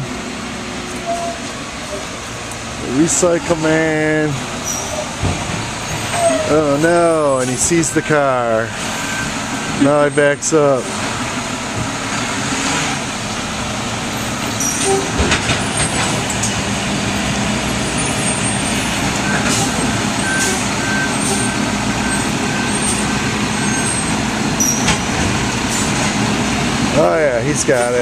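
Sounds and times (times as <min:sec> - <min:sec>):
truck diesel engine running: 0:00.0 - 0:28.0
reversing beeps: 0:20.2 - 0:23.0.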